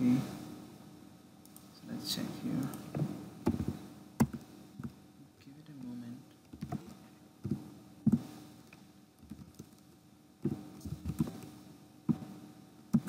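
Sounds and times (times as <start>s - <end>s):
keyboard typing: 3.4s - 5.0s, 6.5s - 8.2s, 9.2s - 9.8s, 10.8s - 11.5s.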